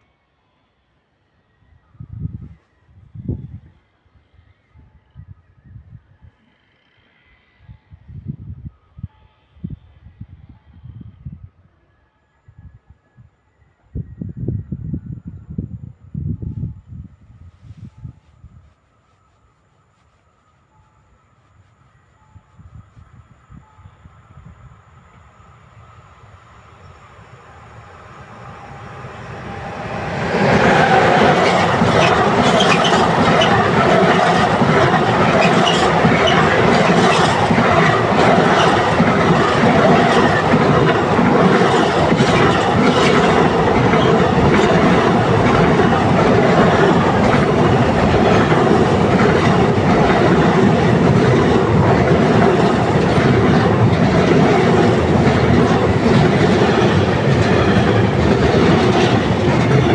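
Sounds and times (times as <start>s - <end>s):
freight train rumbling past: 23.0s - 59.9s
wheels clacking over rails: 29.0s - 59.9s.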